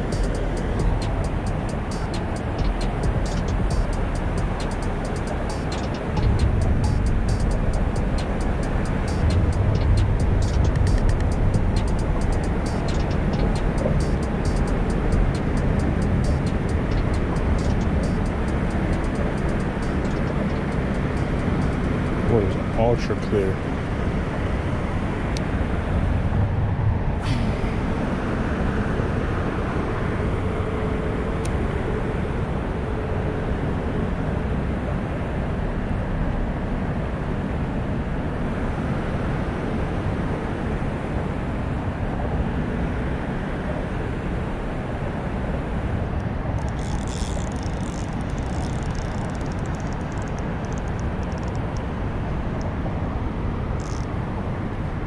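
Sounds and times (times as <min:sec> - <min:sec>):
road traffic rumble: 0:00.0 - 0:55.0
high crackling rustle: 0:46.6 - 0:51.8.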